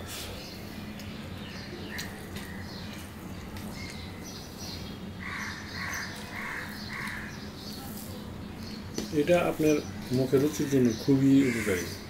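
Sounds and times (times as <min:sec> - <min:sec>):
bird calling: 0:03.7 - 0:07.8, 0:08.8 - 0:12.0.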